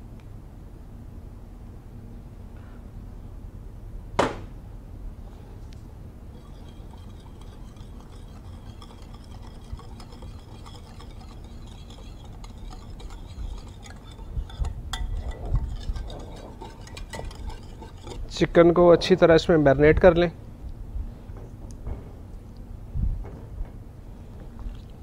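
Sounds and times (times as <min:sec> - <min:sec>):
whisk tapping against bowl: 0:06.3 - 0:18.5
whisk stirring in a bowl: 0:06.3 - 0:18.8.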